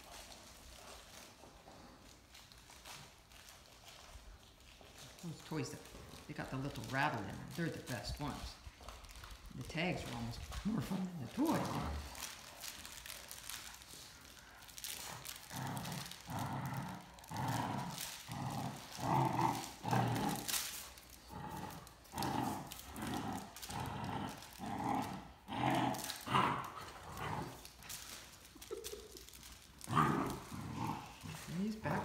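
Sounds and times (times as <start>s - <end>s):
dogs growling in play: 0.0s - 32.0s.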